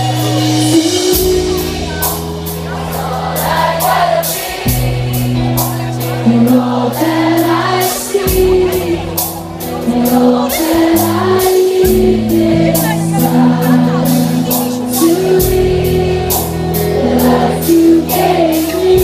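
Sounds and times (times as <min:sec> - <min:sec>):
drums with cymbal strokes: 0:00.0 - 0:19.0
electric bass and guitars: 0:00.0 - 0:19.0
many voices singing: 0:00.0 - 0:19.0.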